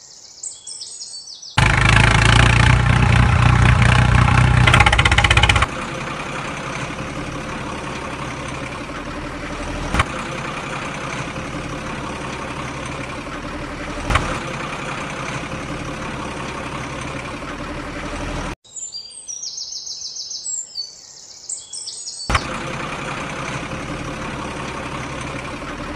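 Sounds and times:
engine idling drone: 1.6s - 18.6s, 22.3s - 25.9s
sharp clicks: 3.9s - 5.7s.

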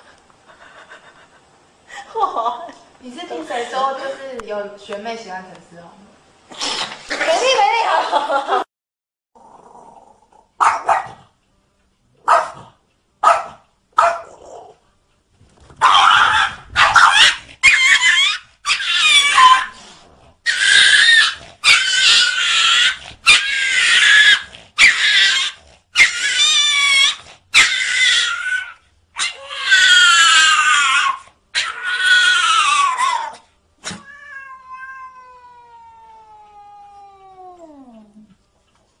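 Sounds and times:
cat yowling: 15.8s - 19.8s, 20.5s - 38.1s.

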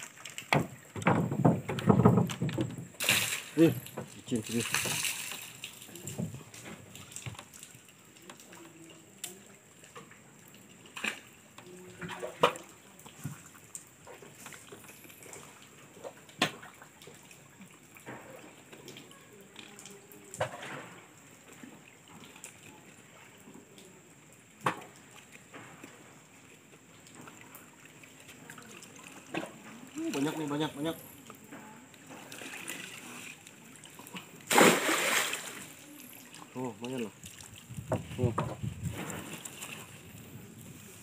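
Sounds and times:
net splashing in water: 3.0s - 6.1s, 32.2s - 37.5s.

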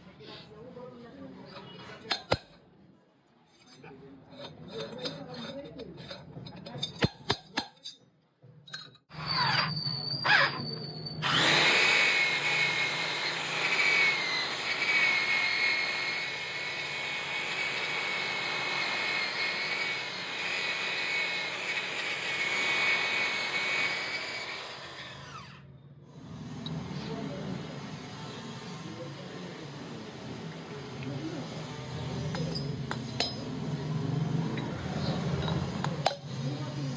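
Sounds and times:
power tool motor whining: 11.2s - 25.7s.

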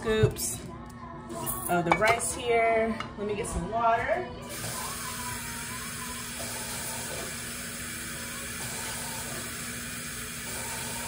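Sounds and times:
faucet water running into bowl: 4.5s - 11.0s.

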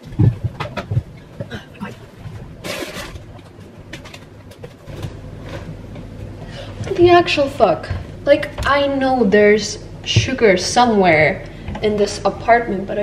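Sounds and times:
rustling scrape: 2.2s - 5.9s.

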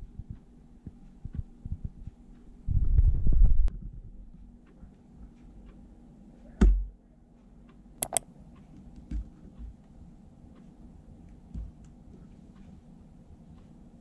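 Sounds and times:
sharp clicks: 8.0s - 8.3s.

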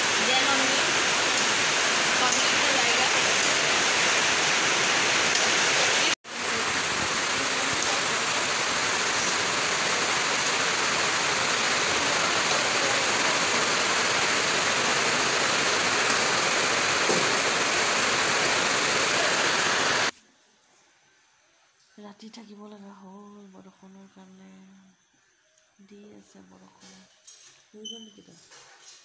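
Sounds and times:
heavy rain pouring: 0.0s - 20.1s.

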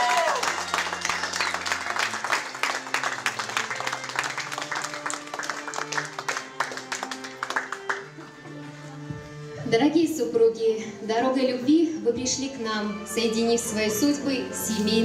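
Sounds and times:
people applauding: 0.0s - 8.6s
violin and cello playing: 1.8s - 9.6s.

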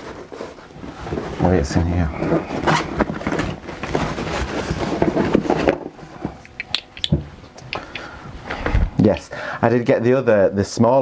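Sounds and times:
rummaging rustling and clatter: 0.0s - 6.4s
scattered clicks: 6.4s - 8.1s.

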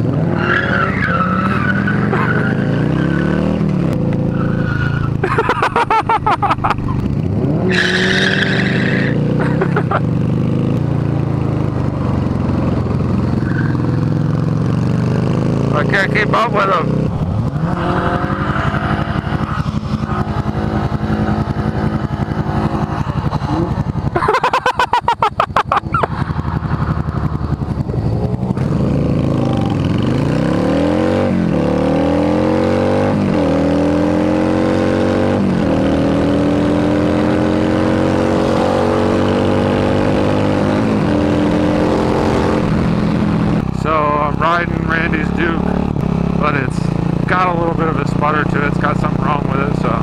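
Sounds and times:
motorcycle engine accelerating: 0.0s - 50.0s.

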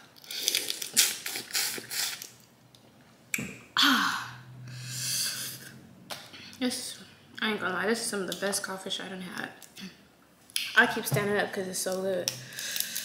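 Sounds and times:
wet sucking sounds: 0.2s - 2.4s.

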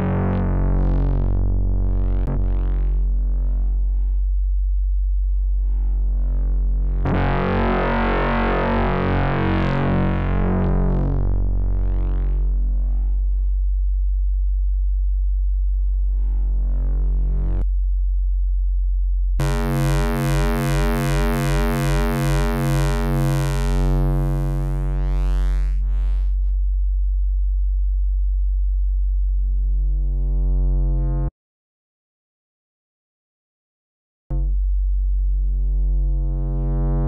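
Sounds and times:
synthesizer low note: 19.4s - 26.6s.

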